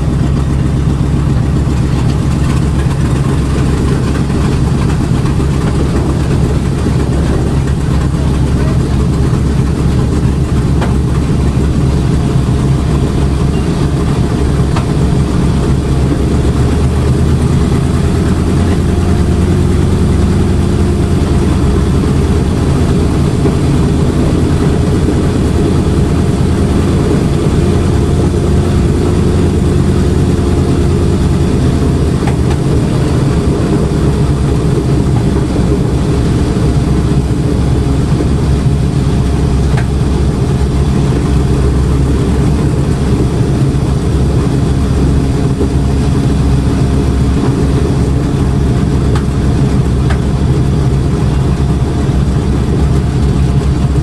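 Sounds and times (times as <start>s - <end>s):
radial engines droning: 0.0s - 54.0s.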